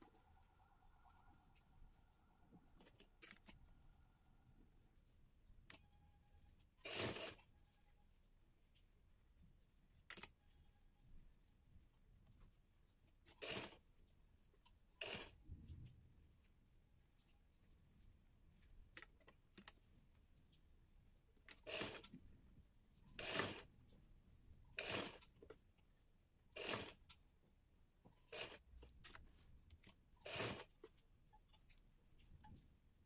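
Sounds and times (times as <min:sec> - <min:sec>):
sewing machine stitching: 0:06.8 - 0:07.5, 0:13.3 - 0:13.9, 0:15.0 - 0:15.4, 0:21.5 - 0:22.2, 0:23.2 - 0:23.7, 0:24.7 - 0:25.4, 0:26.5 - 0:27.2, 0:28.2 - 0:29.2, 0:30.2 - 0:31.0.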